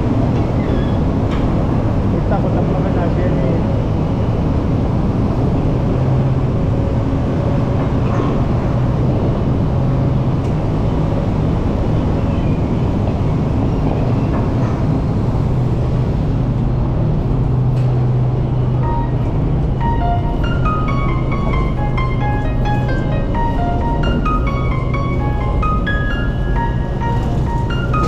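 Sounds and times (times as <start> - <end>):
boat engine drone: 0.0 - 28.0
music notes: 18.8 - 28.0.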